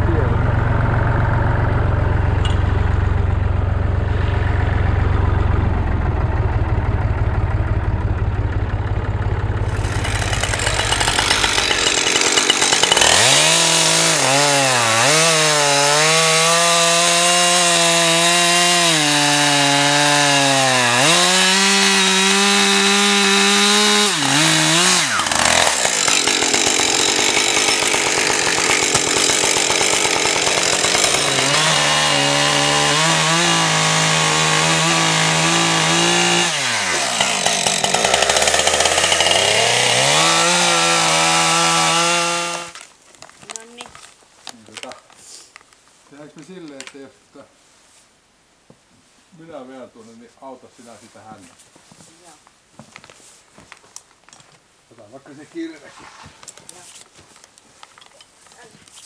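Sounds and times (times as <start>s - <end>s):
tractor engine idling: 0.0s - 13.4s
chainsaw cutting a log: 9.6s - 42.8s.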